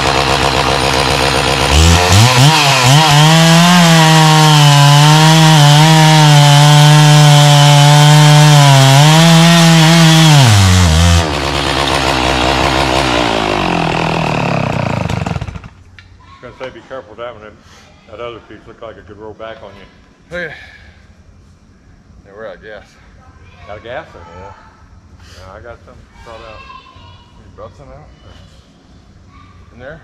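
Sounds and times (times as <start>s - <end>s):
chainsaw cutting log: 0.0s - 15.8s.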